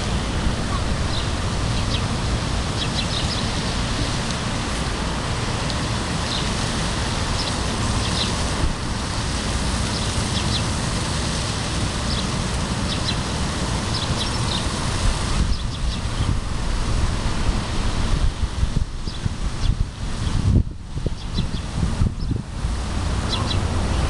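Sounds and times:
wind rumbling on microphone: 0:00.0 - 0:24.0
small birds chirping: 0:00.7 - 0:02.1, 0:02.8 - 0:03.6, 0:07.4 - 0:08.4, 0:09.9 - 0:10.7, 0:12.1 - 0:13.3, 0:13.9 - 0:14.7, 0:15.5 - 0:16.4, 0:21.2 - 0:22.4, 0:23.3 - 0:24.0.

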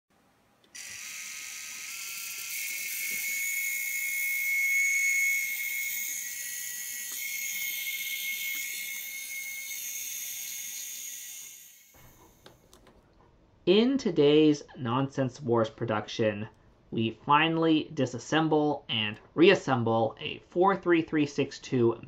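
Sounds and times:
small motor screeching: 0:00.7 - 0:12.4.

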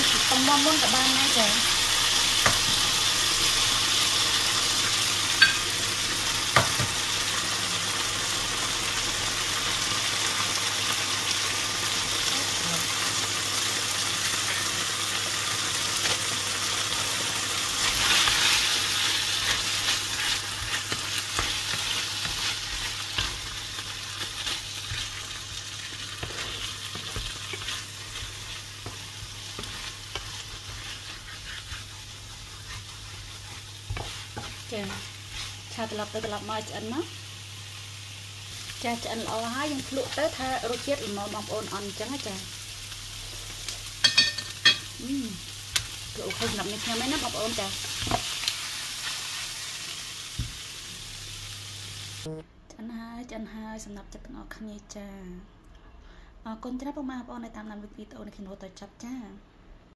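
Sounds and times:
food sizzling in a frying pan: 0:00.0 - 0:52.3
wooden spatula scraping a pan: 0:17.8 - 0:36.5.

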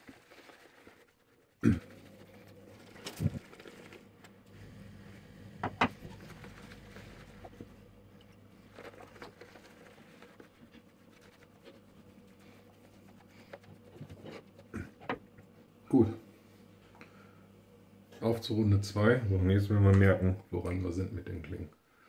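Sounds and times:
shaving brush swirling lather: 0:00.0 - 0:14.7.

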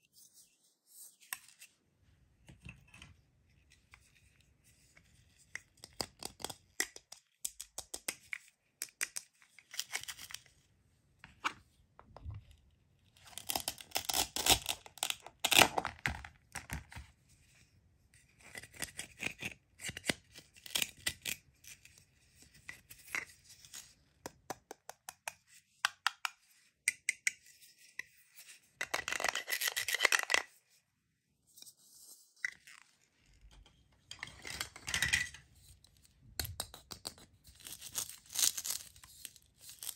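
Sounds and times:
plastic pieces clicking and tapping: 0:05.8 - 0:10.0, 0:36.4 - 0:37.3.

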